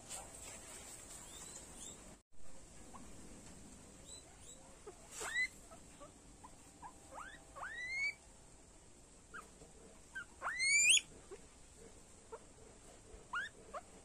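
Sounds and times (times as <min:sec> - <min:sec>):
guinea pig chirps: 0:01.2 - 0:02.0, 0:04.0 - 0:08.2, 0:10.1 - 0:11.4, 0:13.3 - 0:14.0
guinea pig squealing: 0:01.2 - 0:02.0, 0:04.0 - 0:08.2, 0:10.1 - 0:11.4, 0:13.3 - 0:13.9.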